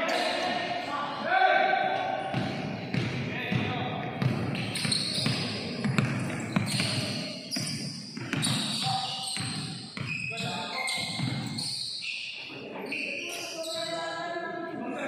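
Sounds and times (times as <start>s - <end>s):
sneakers squeaking: 0.0s - 1.2s, 1.9s - 14.5s
basketball bouncing on hardwood floor: 2.3s - 10.1s, 11.1s - 11.5s.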